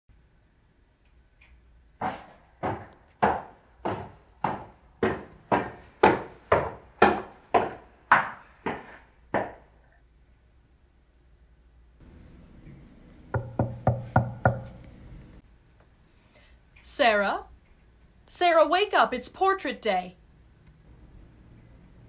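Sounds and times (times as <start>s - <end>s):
hard strikes on wood: 2.0s - 8.8s, 13.3s - 14.8s.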